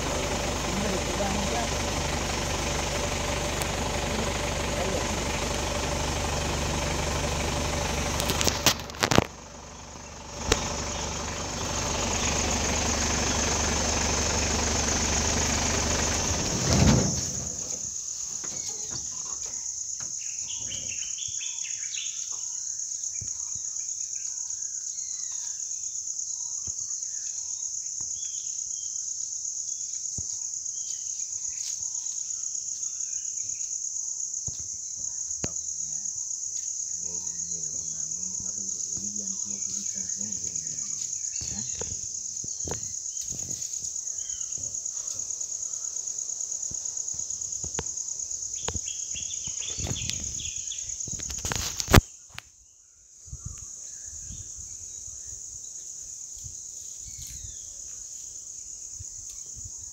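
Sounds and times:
vehicle engine idling: 0.0 - 21.8, 34.6 - 52.0
insect drone: 0.0 - 59.9
sharp clicks: 7.1 - 9.4, 10.3 - 12.4
bird chirps: 18.4 - 29.0, 36.6 - 46.1, 48.4 - 51.2.

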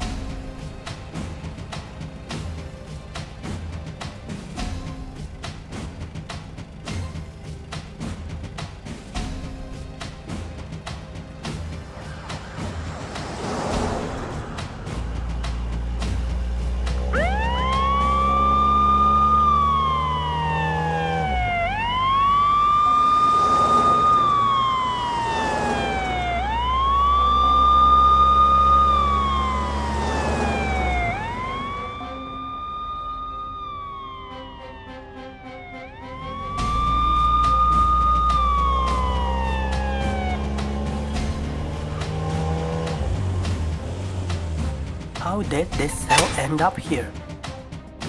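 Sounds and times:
police siren wailing: 17.0 - 42.8.

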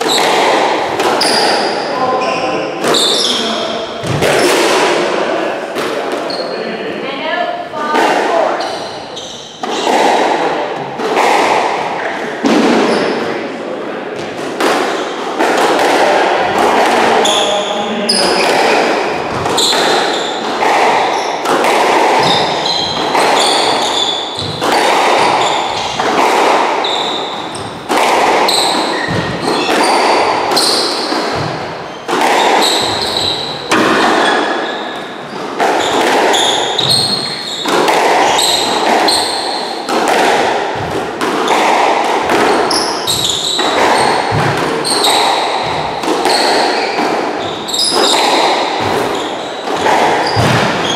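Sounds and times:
shoes squeaking on hardwood floor: 0.0 - 4.6, 6.2 - 6.8, 7.8 - 10.1, 17.0 - 39.9, 40.7 - 50.9
ball hitting walls: 0.0 - 6.4, 7.9 - 13.3, 14.2 - 50.9
racket striking squash ball: 0.0 - 6.5, 7.8 - 13.4, 14.2 - 50.9.

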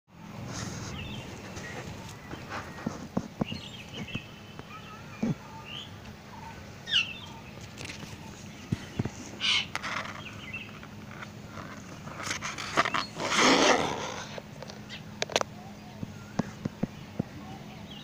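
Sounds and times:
faint steady hum: 0.1 - 18.0
rustling noise: 0.4 - 4.2, 7.6 - 14.8
bird chirps: 0.9 - 7.6, 8.2 - 10.8.

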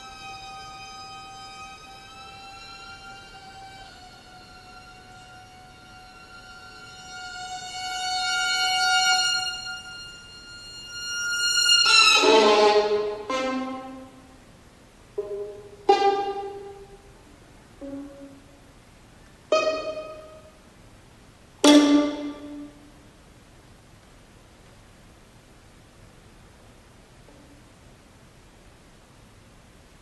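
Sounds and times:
solo violin: 0.0 - 14.4, 15.2 - 18.8, 19.4 - 20.8, 21.6 - 23.0.

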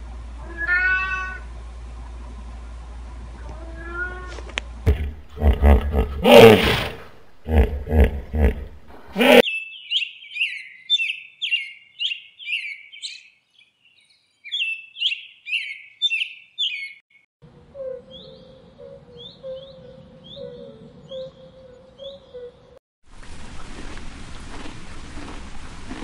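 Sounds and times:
hippopotamus grunting: 4.9 - 9.4
faint steady hum: 17.4 - 22.1.

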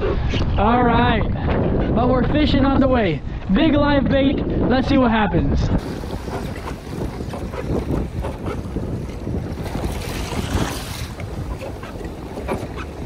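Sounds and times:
wind buffeting microphone: 0.0 - 13.0
water slapping against kayak hull: 5.8 - 13.0.

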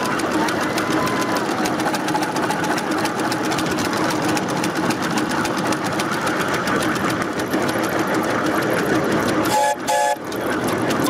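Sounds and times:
steam locomotive mechanical clatter: 0.0 - 11.0.

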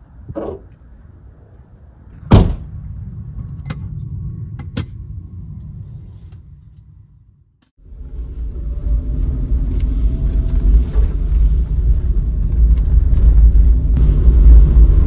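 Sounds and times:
low rumble: 0.0 - 15.0
van hatch slamming: 2.2 - 2.7.

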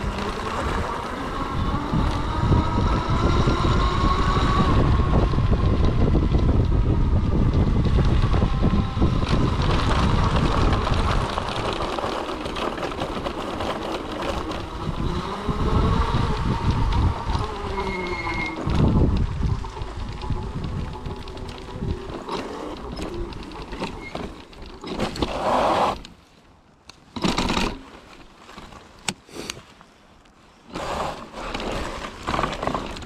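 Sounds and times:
wind on microphone: 0.0 - 24.3
fat tyre rumbling on gravel: 0.0 - 26.0, 30.6 - 33.0
electric motor whining: 13.6 - 23.7.

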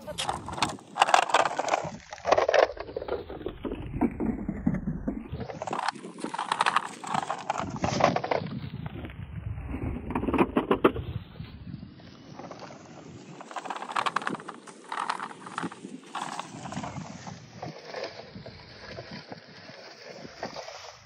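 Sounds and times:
toy wheels crunching over pebbles: 0.0 - 4.4, 5.4 - 8.8, 12.1 - 21.0.

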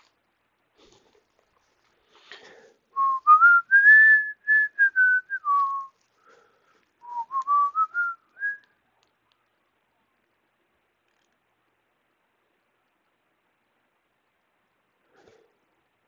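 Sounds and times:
person whistling a tune: 3.0 - 5.9, 7.0 - 8.7.

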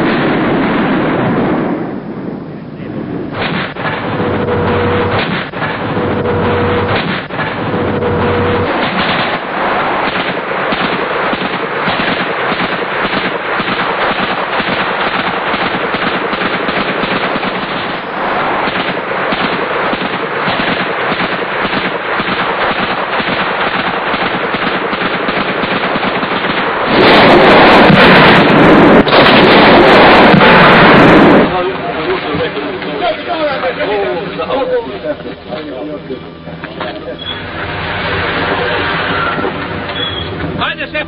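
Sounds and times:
machine-gun fire: 0.0 - 1.9, 3.1 - 34.7.

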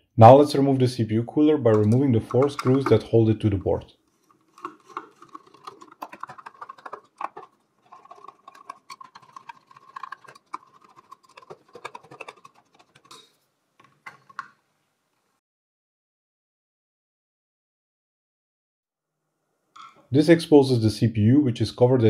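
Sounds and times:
screwdriver turning screws: 4.2 - 14.4.

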